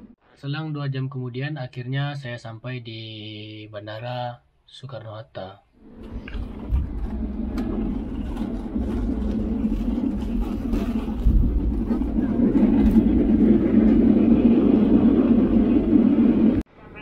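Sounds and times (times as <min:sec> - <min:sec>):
airliner cabin rumble and roar: 0:05.8 - 0:17.0.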